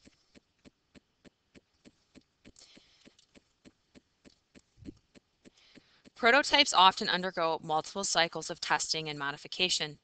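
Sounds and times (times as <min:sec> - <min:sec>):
soft regular clicks: 0:00.0 - 0:06.2.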